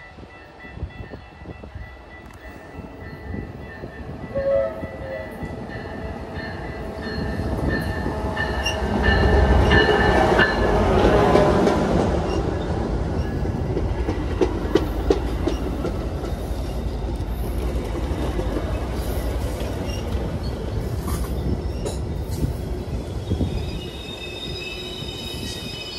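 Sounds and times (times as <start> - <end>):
diesel locomotive engine: 0.0 - 25.9
wheels clacking over rail joints: 8.5 - 22.4.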